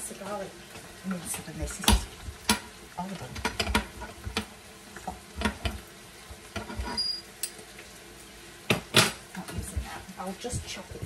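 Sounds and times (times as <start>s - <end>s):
sizzling hiss: 0.0s - 11.0s
utensils knocking and clicking: 3.4s - 5.8s.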